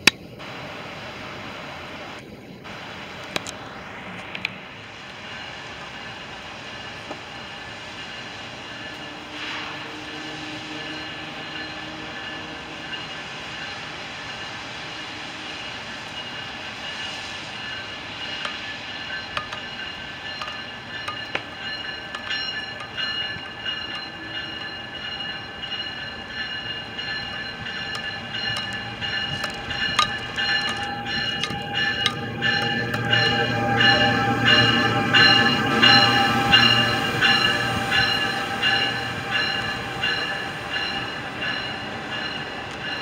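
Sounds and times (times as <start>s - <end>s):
electric locomotive whine: 0.0s - 43.0s
wheel clicks on rails: 18.4s - 24.8s, 27.1s - 33.5s.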